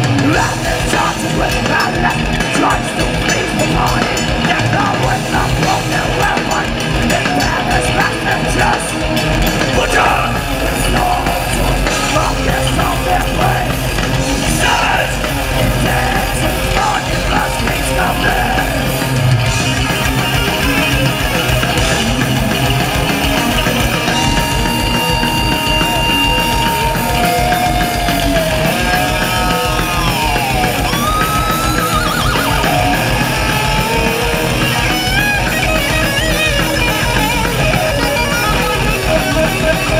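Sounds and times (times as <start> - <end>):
metal band playing live: 0.0 - 39.9
lead guitar high bending notes: 18.8 - 39.9.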